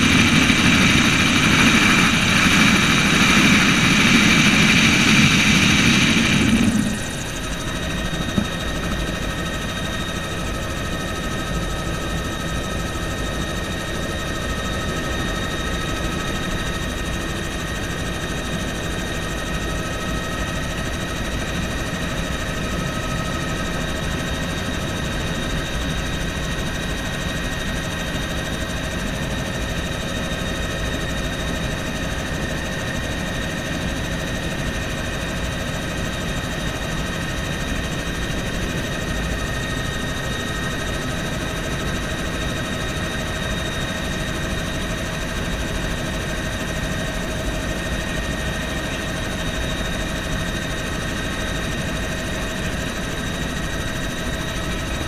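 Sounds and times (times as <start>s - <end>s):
high whine: 0.0s - 8.6s
helicopter rotor and engine rumble: 0.0s - 55.0s.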